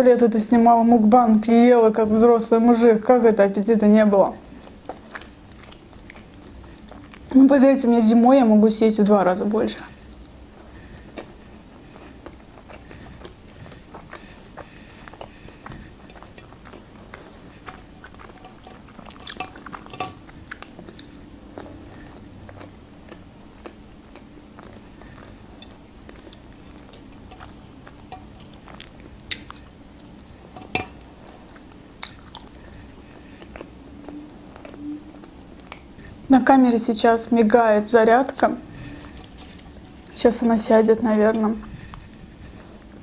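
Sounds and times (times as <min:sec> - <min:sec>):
person chewing food: 0:04.4 - 0:07.4, 0:09.9 - 0:36.4, 0:38.4 - 0:40.6, 0:41.6 - 0:43.0.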